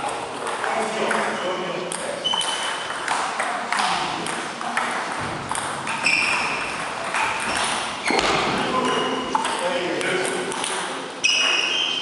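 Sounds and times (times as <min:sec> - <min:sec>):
table tennis balls clicking: 0:00.0 - 0:11.8.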